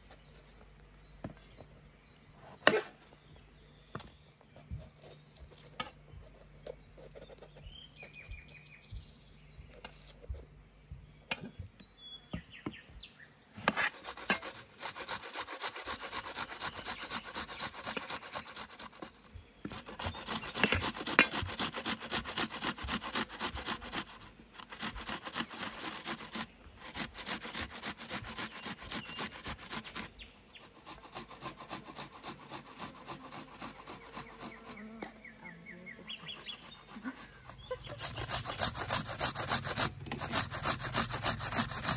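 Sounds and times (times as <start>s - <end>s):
onion grated on metal grater: 13.6s - 30.1s, 36.2s - 41.9s.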